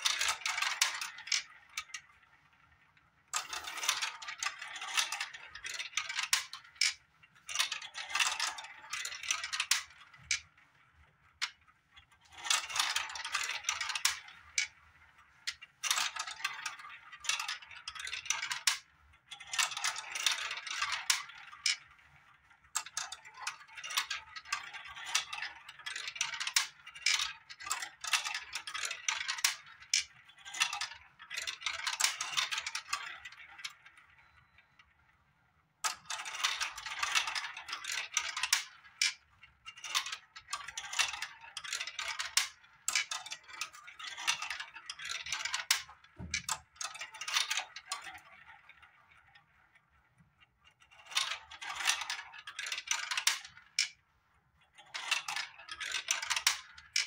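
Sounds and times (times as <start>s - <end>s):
balls clattering down marble run: 0.0s - 35.1s, 35.8s - 57.0s.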